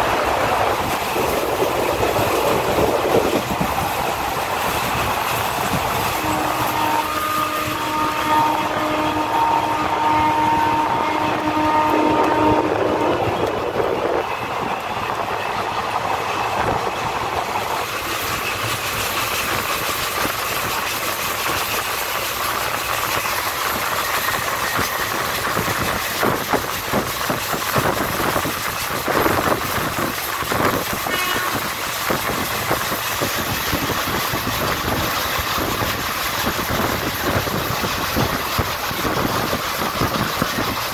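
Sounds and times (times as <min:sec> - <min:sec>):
rumble of wheels on rail: 0:00.0 - 0:40.9
locomotive horn chord: 0:06.2 - 0:13.2
wheels clacking over rail joints: 0:11.0 - 0:40.9.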